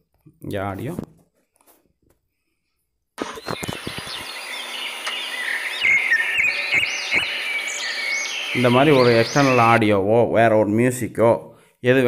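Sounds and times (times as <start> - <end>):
birds chirping: 3.2 - 9.9.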